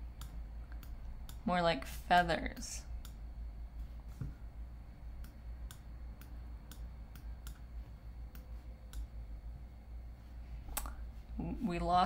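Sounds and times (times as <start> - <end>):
low steady hum: 0.0 - 12.0
computer mouse clicks: 3.0 - 3.2, 5.2 - 7.7.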